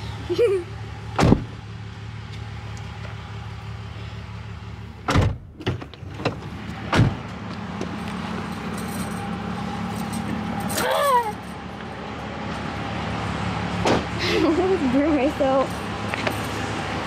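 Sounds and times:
car door clunks: 0:01.2 - 0:01.5, 0:05.0 - 0:07.2.

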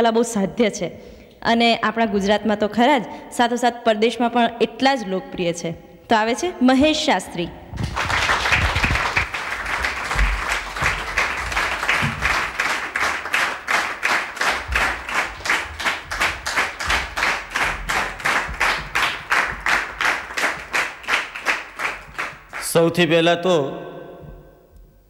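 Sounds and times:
audience applause: 0:07.8 - 0:22.8.

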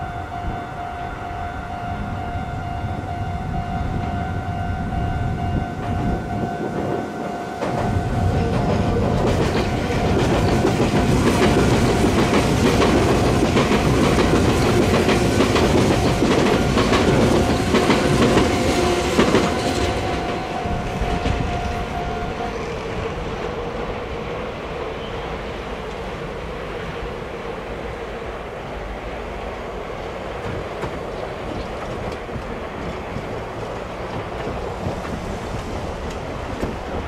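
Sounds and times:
steady high tone: 0:00.0 - 0:13.6, 0:14.7 - 0:28.8
train wheels clattering over rails: 0:05.8 - 0:24.0, 0:28.6 - 0:37.0.

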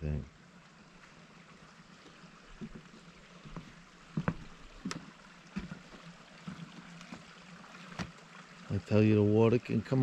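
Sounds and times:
footsteps on wooden boards: 0:02.5 - 0:07.3.

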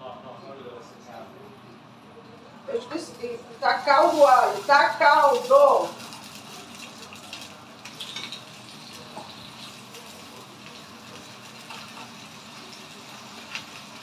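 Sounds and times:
steaks sizzling in oil: 0:03.6 - 0:14.0.

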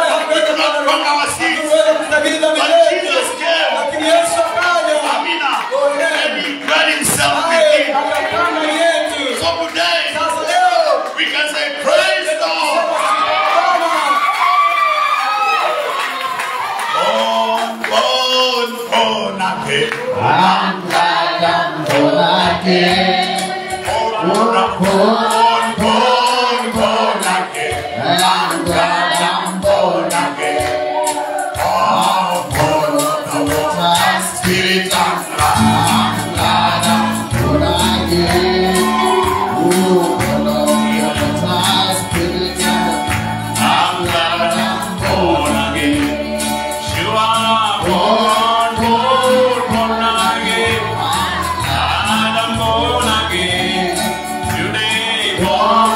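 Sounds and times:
steady percussive beat: 0:03.6 - 0:10.7, 0:17.6 - 0:55.9
choir singing: 0:18.9 - 0:55.9
bass line: 0:34.6 - 0:55.9.

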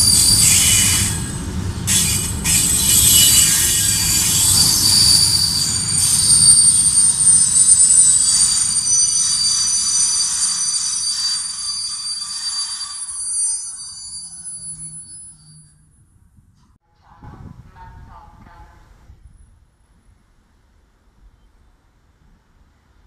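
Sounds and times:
train wheels rumbling on rail: 0:00.0 - 0:14.9
high-pitched wheel squeal: 0:00.0 - 0:16.0.

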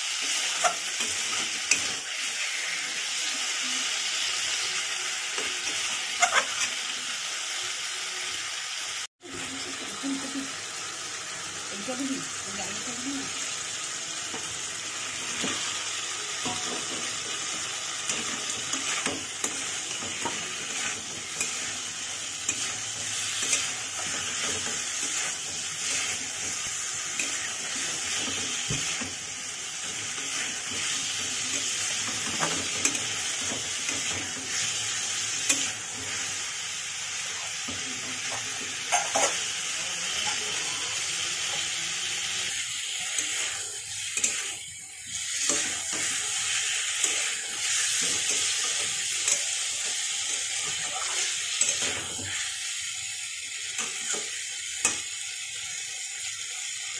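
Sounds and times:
vegetables sizzling in oil: 0:00.0 - 0:56.9
spatula scraping and knocking pan: 0:16.4 - 0:36.1.

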